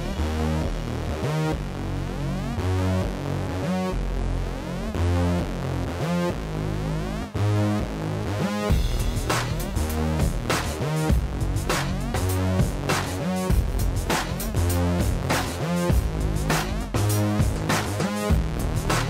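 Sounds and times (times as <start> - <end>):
heavy bass line: 0.0 - 19.0
drum beat: 8.7 - 19.0.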